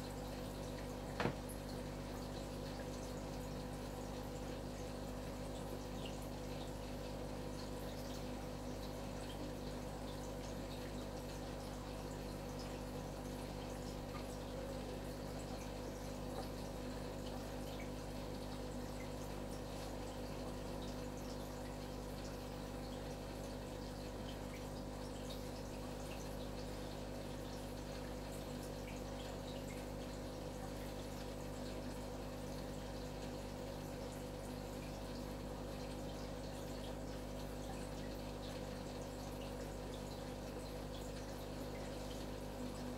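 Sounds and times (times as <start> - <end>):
aquarium filter hum: 0.0 - 42.9
water trickling: 0.0 - 42.9.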